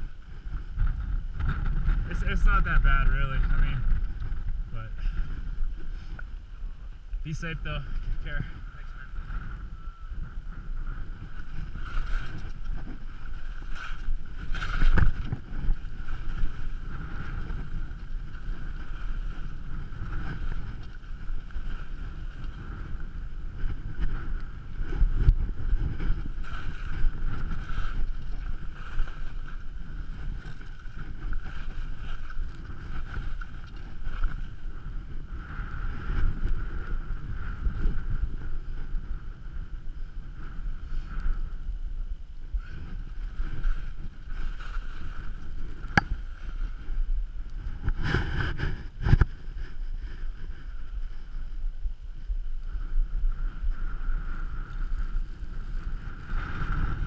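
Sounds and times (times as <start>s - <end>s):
wind buffeting microphone: 0.0s - 57.0s
skis scraping over snow: 10.4s - 39.7s, 42.6s - 46.9s, 53.2s - 57.0s.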